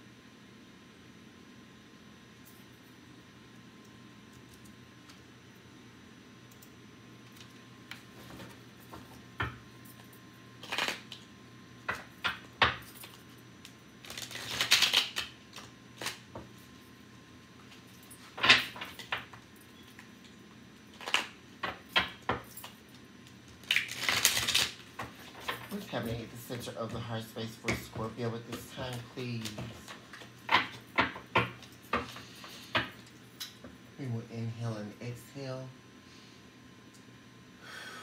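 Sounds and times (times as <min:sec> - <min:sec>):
cards being shuffled: 0:10.6 - 0:11.3, 0:14.0 - 0:16.6, 0:20.9 - 0:22.4, 0:23.5 - 0:32.8.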